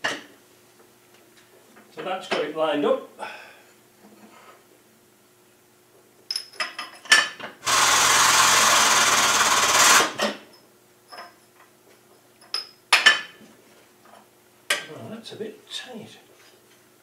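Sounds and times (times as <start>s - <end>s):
hydraulic press pump hissing: 7.7s - 10.3s.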